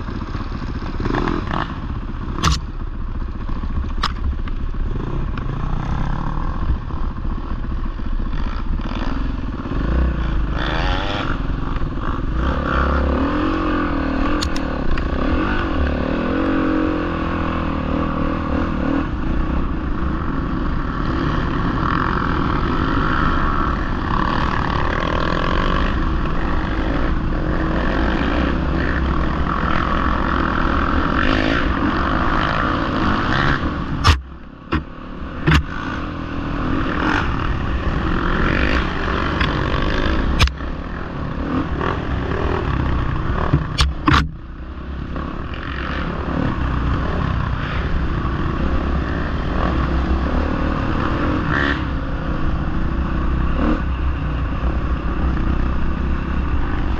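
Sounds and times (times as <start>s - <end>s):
dirt bike engines revving: 0.0s - 56.9s
sharp knocks: 34.0s - 35.7s, 43.5s - 44.4s.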